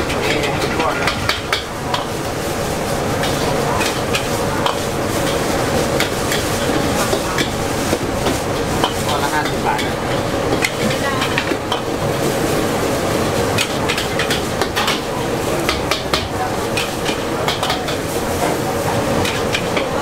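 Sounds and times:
metal spatula scraping a wok: 0.0s - 11.5s
frying sizzle: 0.0s - 20.0s.

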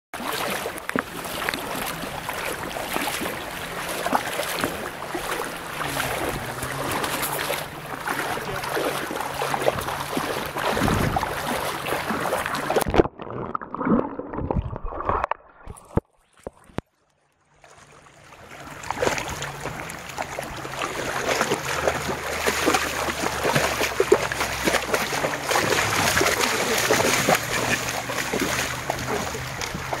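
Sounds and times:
dog splashing through water: 0.2s - 13.0s, 18.4s - 30.0s.

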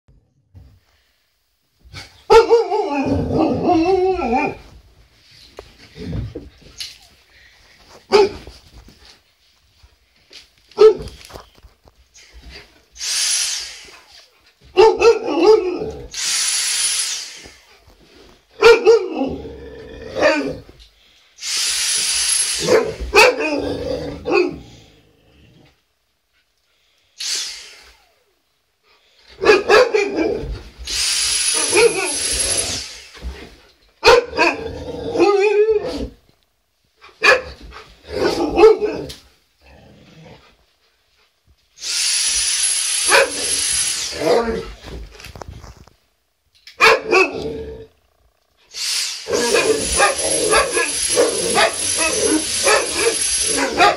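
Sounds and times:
dogs barking and howling: 2.3s - 4.7s, 14.8s - 16.1s, 18.6s - 19.4s, 22.6s - 24.8s, 31.5s - 32.8s, 35.2s - 36.2s, 38.2s - 39.2s, 43.0s - 44.6s, 46.8s - 47.5s, 49.2s - 53.9s
vacuum cleaner whining: 16.1s - 17.6s, 21.4s - 23.1s, 30.8s - 33.3s, 41.8s - 44.6s, 48.7s - 53.9s.

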